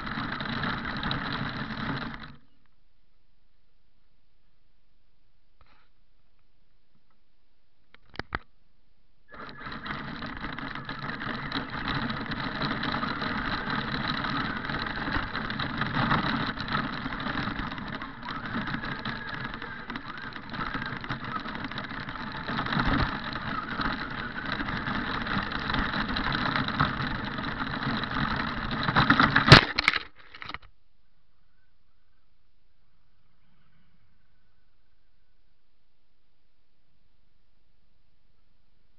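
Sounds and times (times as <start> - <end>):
rc car motor on gravel and snow: 0.0 - 2.6, 9.3 - 30.7
faint clicks: 9.3 - 30.7.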